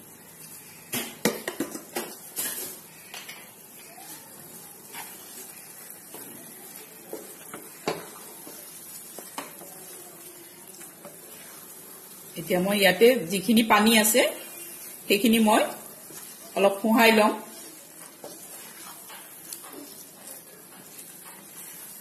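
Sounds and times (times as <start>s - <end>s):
faint sizzle: 0.0s - 22.0s
spatula scraping frying pan: 4.5s - 9.6s, 10.6s - 12.3s, 14.0s - 22.0s.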